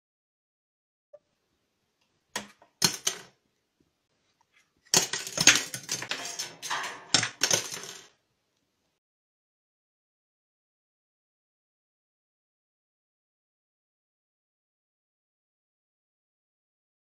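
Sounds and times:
plastic forks clattering on blind slats: 2.4s - 3.3s, 4.9s - 8.1s.

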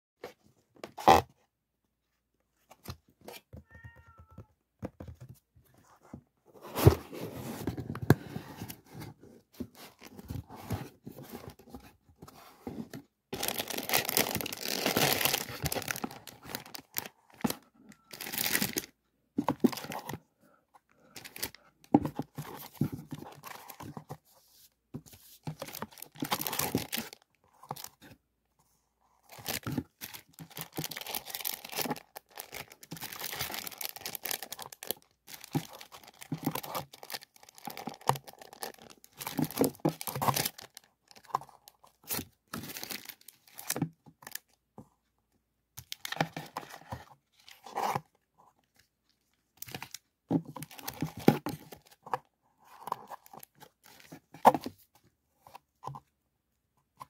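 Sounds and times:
cardboard and plastic rustling: 2.5s - 44.9s, 45.8s - 56.1s
plastic crinkling: 13.3s - 18.9s, 29.3s - 41.3s.

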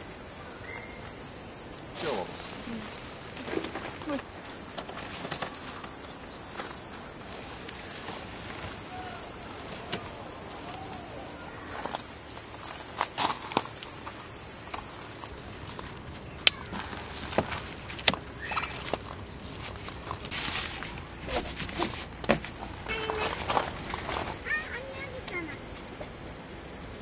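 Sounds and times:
insects buzzing: 0.0s - 27.0s.

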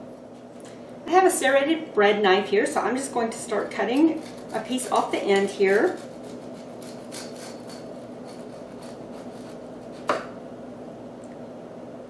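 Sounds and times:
bread knife sawing through crust: 3.8s - 10.2s
sharp knock of slice: 10.0s - 10.4s.

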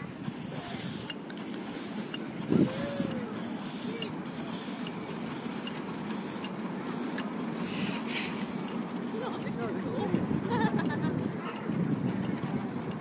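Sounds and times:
steam hissing: 0.0s - 9.9s
steam locomotive chuffing: 0.0s - 13.0s
wheels rumbling on rails: 0.0s - 13.0s.

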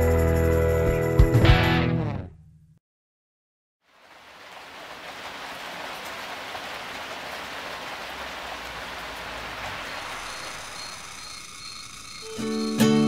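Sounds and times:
steady rain falling: 3.8s - 11.8s.

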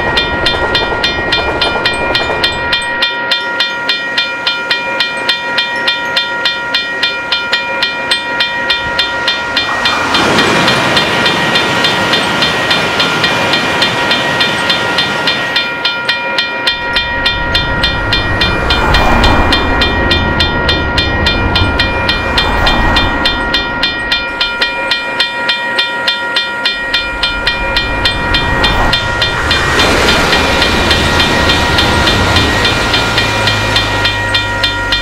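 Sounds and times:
passing traffic and train whooshes: 0.0s - 35.0s
railroad crossing bell ringing: 0.0s - 35.0s
low rumble: 16.7s - 24.6s, 26.8s - 34.9s.

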